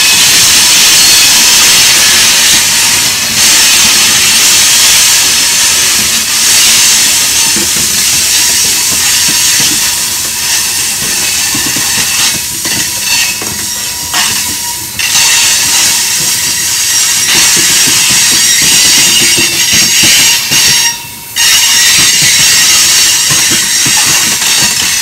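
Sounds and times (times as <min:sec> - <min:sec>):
train wheels clicking over rail joints: 0:00.0 - 0:25.0
high-pitched wheel squeal: 0:06.5 - 0:25.0.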